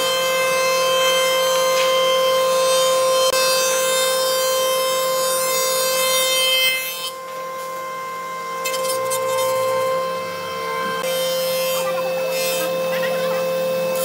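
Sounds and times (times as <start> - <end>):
power tool motor whining: 6.6 - 14.0
rasping sanding noise: 8.6 - 14.0.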